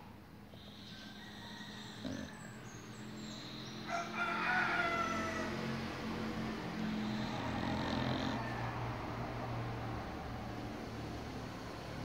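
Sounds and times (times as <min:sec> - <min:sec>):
dog snoring: 0:00.5 - 0:03.5, 0:06.5 - 0:08.7
rooster crowing: 0:00.6 - 0:02.8, 0:03.7 - 0:06.0, 0:06.7 - 0:09.4.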